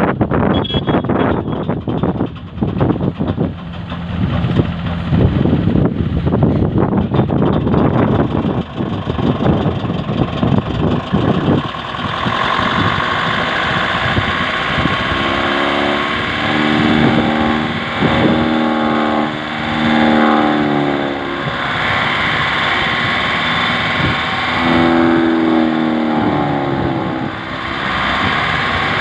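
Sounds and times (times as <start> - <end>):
droning hum: 0.0 - 29.0
straw chopping machine running: 1.0 - 29.0
rattling knocks: 1.1 - 5.0
rushing noise of blown straw: 12.1 - 29.0.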